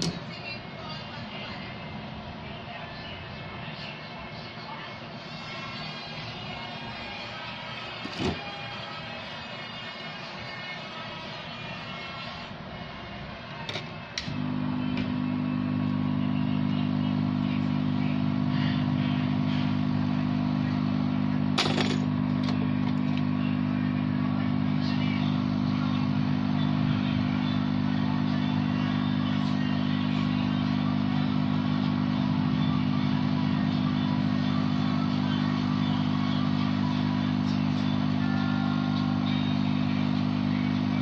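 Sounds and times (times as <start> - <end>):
hot air blower humming: 0.0 - 41.0.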